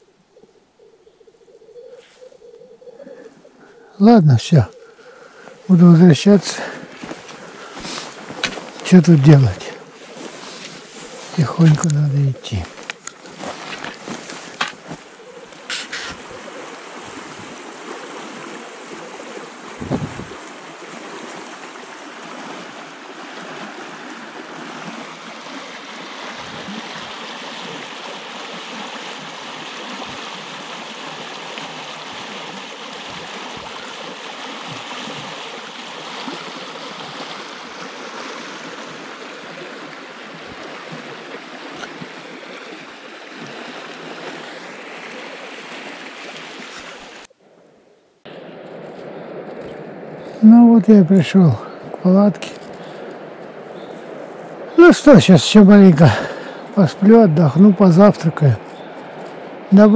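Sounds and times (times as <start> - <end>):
river rushing over rapid: 5.6 - 47.3
short rustles and knocks: 12.6 - 16.2.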